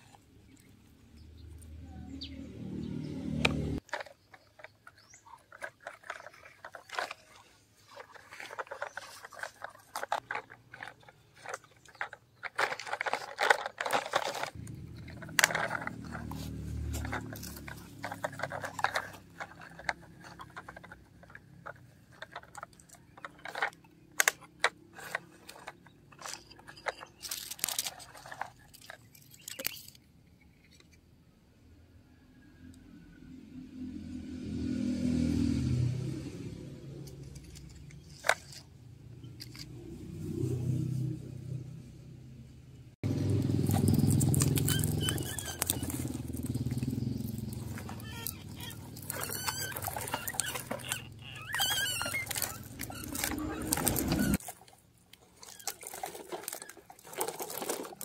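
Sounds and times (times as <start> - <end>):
toy vehicle crunching gravel: 2.9 - 31.0, 35.2 - 41.0, 43.0 - 58.0
small plastic clicks: 43.6 - 58.0.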